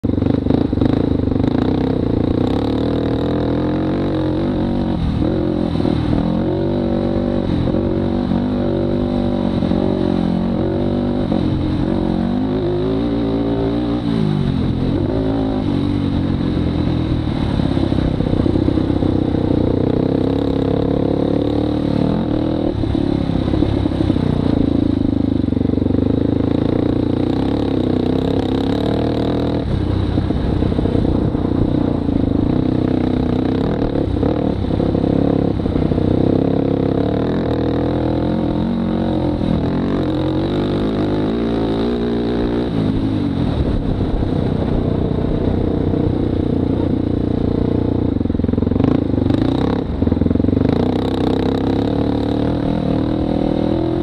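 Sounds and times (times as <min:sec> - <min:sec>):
quad bike engine revving: 0:00.0 - 0:54.0.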